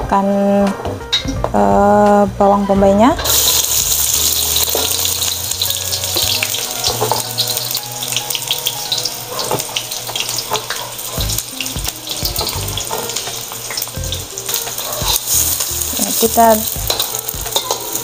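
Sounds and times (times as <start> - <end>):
onions sizzling in hot oil: 3.2 - 18.0.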